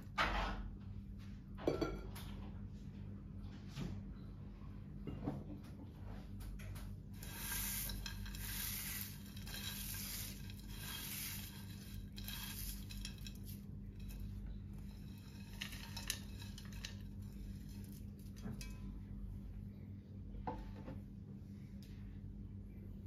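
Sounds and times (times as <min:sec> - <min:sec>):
fried onions rustling and crackling: 0:07.2 - 0:18.6.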